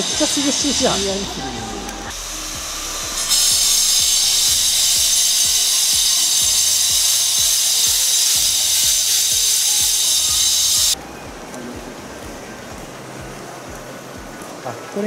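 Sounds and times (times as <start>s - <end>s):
high-pitched hissing grind: 0.0s - 11.0s.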